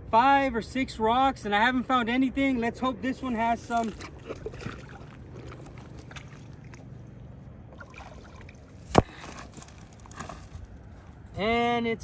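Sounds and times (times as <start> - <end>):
water sloshing and splashing: 3.2 - 10.6.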